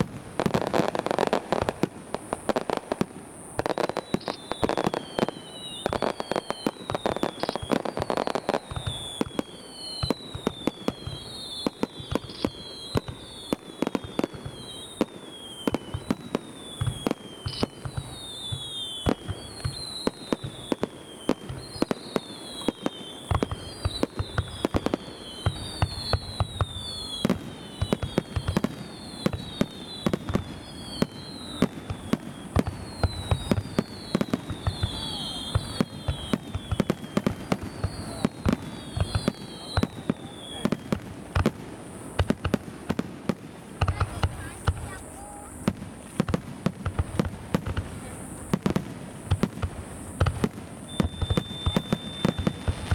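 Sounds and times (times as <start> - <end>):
fireworks bangs: 0.0 - 52.9
short falling whistle: 25.4 - 40.8, 50.9 - 52.7.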